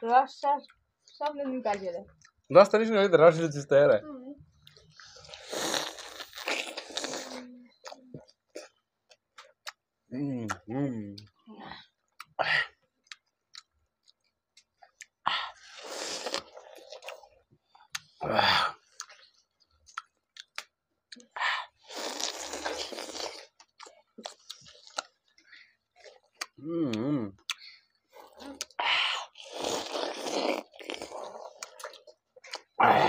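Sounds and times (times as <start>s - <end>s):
people chewing watermelon: 4.5s - 11.3s, 12.1s - 33.0s
wet mouth clicks: 4.6s - 8.8s, 9.4s - 9.8s, 10.5s - 11.3s, 13.1s - 15.2s, 16.1s - 18.2s, 18.9s - 19.2s, 19.9s - 21.3s, 26.2s - 32.8s.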